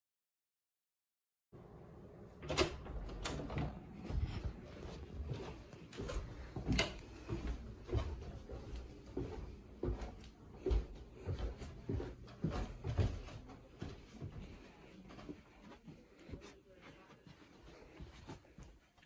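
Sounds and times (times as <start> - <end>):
footsteps: 3.6 - 19.0.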